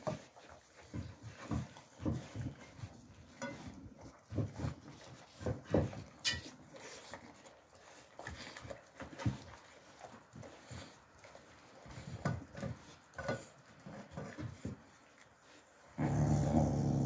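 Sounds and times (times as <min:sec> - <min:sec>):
puppies chewing: 0:00.0 - 0:17.0.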